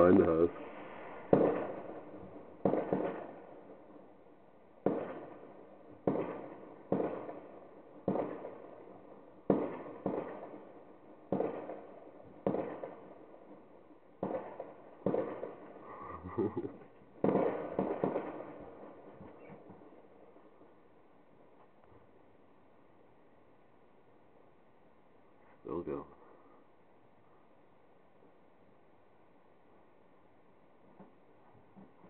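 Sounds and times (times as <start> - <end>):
fireworks banging: 0.0 - 3.9, 4.8 - 8.7, 9.4 - 13.2, 14.2 - 20.3.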